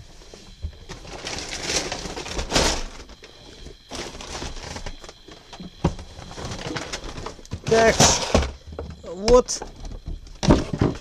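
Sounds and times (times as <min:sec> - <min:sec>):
plastic bags rustling: 0:00.9 - 0:05.4.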